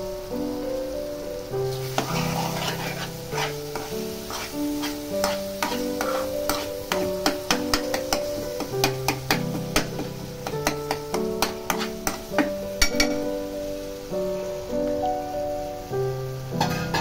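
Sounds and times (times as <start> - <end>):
background music with held notes: 0.0 - 17.0
masala sizzling: 0.0 - 17.0
metal spoon scraping metal pan: 1.8 - 13.2, 16.6 - 17.0
spoon clicking on pan: 5.2 - 13.2.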